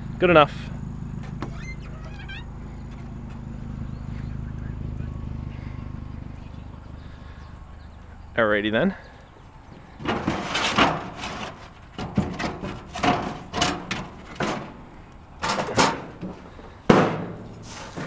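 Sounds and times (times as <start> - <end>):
scrapes and knocks of objects: 9.8 - 18.0.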